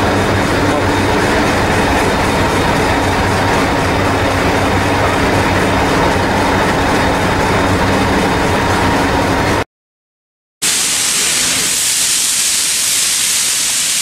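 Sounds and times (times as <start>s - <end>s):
train diesel engine idling: 0.0s - 9.6s, 10.6s - 14.0s.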